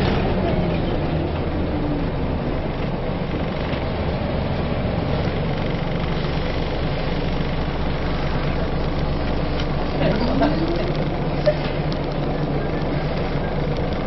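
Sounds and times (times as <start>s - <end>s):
bus diesel engine running: 0.0s - 14.0s.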